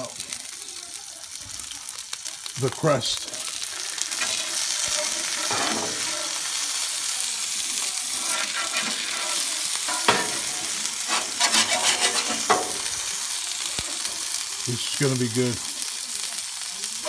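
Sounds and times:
food sizzling on a griddle: 0.0s - 17.0s
spatula scraping a griddle: 3.7s - 6.4s, 7.7s - 13.0s.

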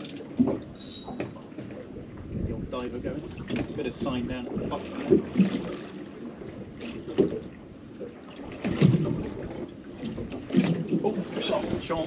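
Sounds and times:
water slapping boat hull: 0.0s - 12.0s
wind on microphone: 1.9s - 5.7s.

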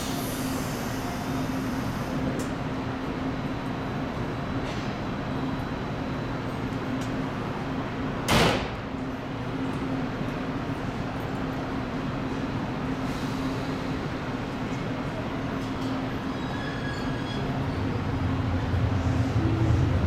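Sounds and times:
train sliding doors closing: 4.6s - 5.1s, 8.1s - 9.0s, 13.0s - 20.0s
electric train humming: 17.4s - 20.0s.

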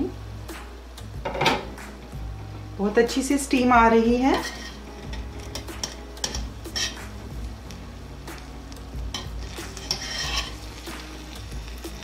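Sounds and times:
steel spoon scraping a pot: 4.2s - 7.3s, 9.1s - 10.9s.

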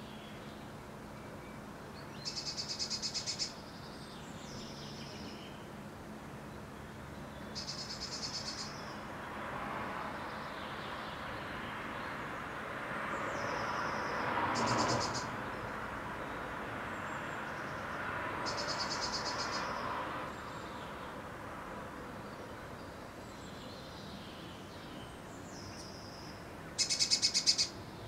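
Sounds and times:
songbird trilling: 2.0s - 5.6s, 7.4s - 9.0s, 13.8s - 15.3s, 18.4s - 19.8s, 25.6s - 27.8s.

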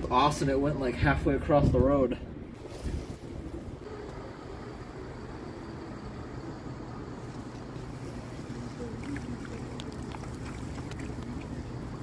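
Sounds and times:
wind buffeting microphone: 1.0s - 3.9s.

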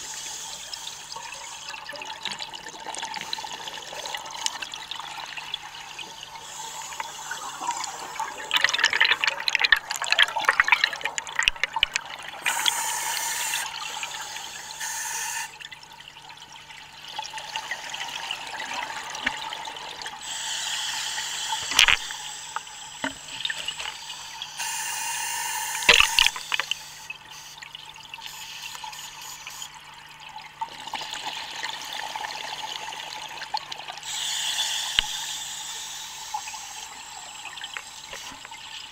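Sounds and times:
gurgling exhaust bubbles: 1.2s - 12.6s
hissing regulator inhales: 6.4s - 9.3s, 12.4s - 15.5s, 20.2s - 27.6s, 34.0s - 38.6s.

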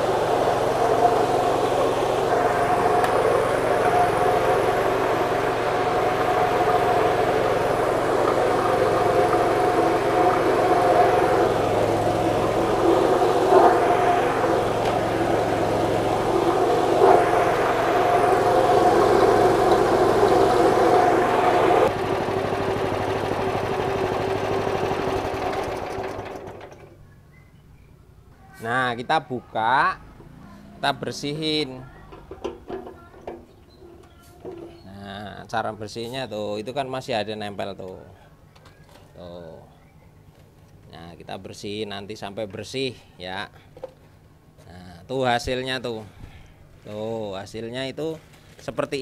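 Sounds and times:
grinding machine motor hum: 0.0s - 27.0s.

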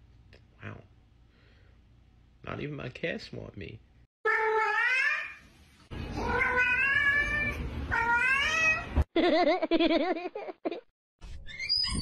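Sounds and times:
cat meowing: 4.3s - 5.4s, 6.1s - 9.0s.

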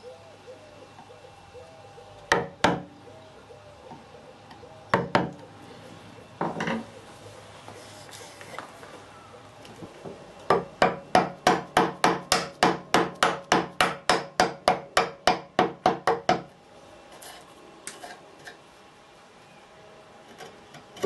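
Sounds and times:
chisel struck chopping wood: 10.5s - 16.4s.

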